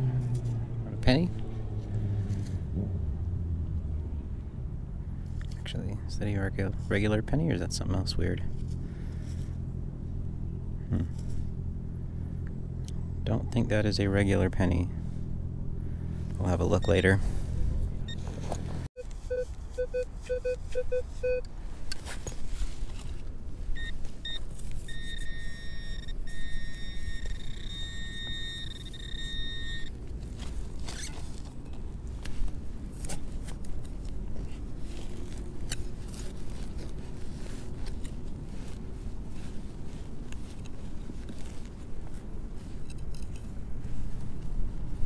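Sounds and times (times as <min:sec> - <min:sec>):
metal detector beeping: 0:16.7 - 0:17.2, 0:19.0 - 0:21.5, 0:23.8 - 0:30.0.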